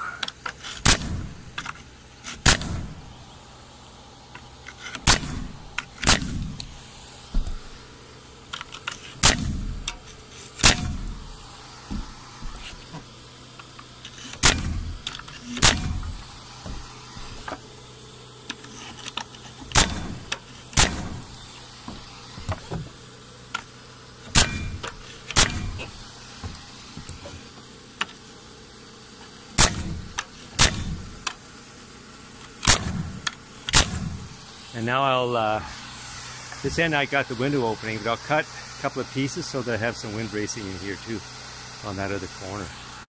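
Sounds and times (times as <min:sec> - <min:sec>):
nail gun shots into wood: 0:00.8 - 0:01.7, 0:02.3 - 0:03.0, 0:05.0 - 0:06.7, 0:09.2 - 0:10.0, 0:10.6 - 0:11.2, 0:14.3 - 0:16.2, 0:19.7 - 0:21.4, 0:24.3 - 0:26.0, 0:29.6 - 0:31.4, 0:32.6 - 0:34.3.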